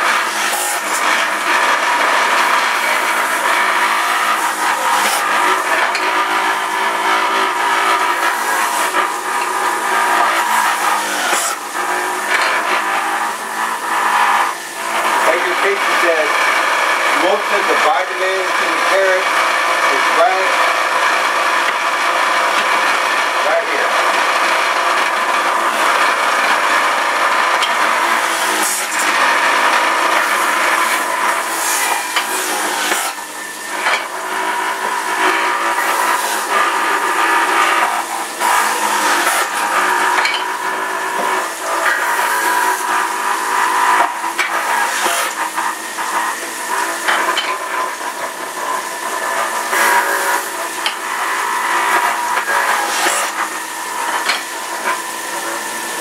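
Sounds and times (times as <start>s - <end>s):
juicer grinding rasps: 0.0s - 56.0s
juicer motor whining: 0.0s - 56.0s.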